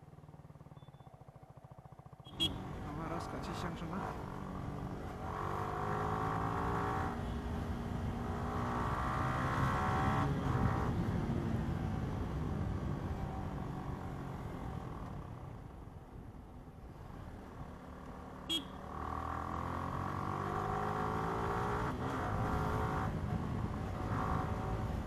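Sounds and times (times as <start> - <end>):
motorcycle engine accelerating: 0.0 - 15.0.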